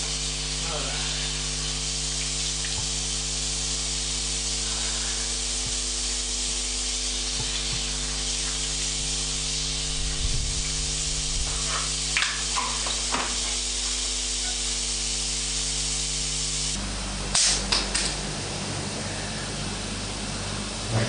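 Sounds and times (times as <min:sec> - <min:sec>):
steady hiss: 0:00.0 - 0:16.8
low electrical hum: 0:00.0 - 0:21.0
low bumps: 0:09.0 - 0:11.8.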